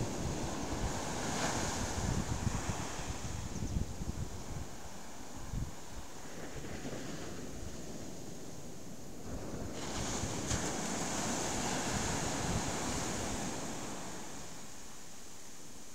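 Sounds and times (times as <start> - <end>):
wind buffeting microphone: 0.0 - 14.5
surf breaking on beach: 0.0 - 14.8.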